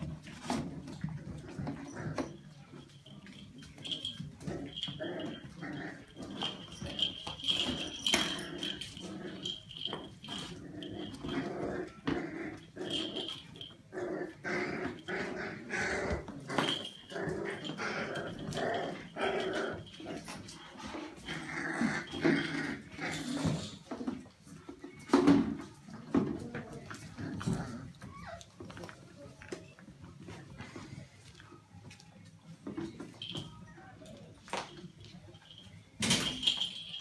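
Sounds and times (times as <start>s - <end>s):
puppies growling and whining: 0.3s - 2.5s, 3.6s - 24.3s, 25.9s - 29.0s.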